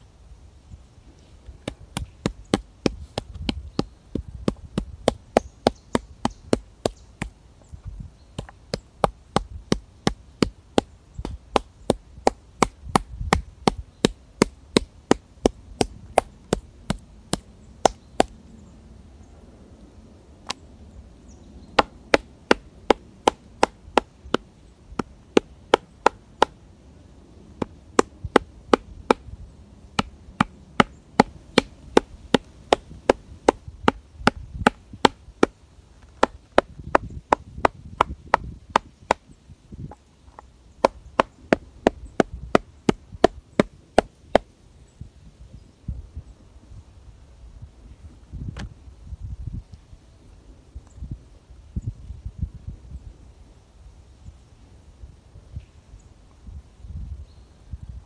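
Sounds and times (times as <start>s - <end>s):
wood being chopped: 1.6s - 7.4s, 8.4s - 18.4s, 21.8s - 26.6s, 27.6s - 29.3s, 30.0s - 39.2s, 40.8s - 44.5s.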